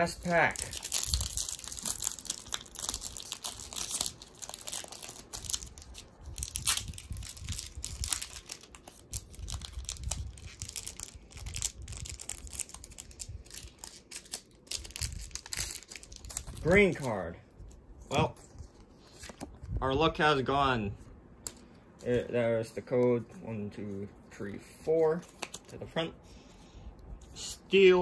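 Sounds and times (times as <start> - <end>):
foil wrapper tearing and crinkling: 0.0 - 17.3.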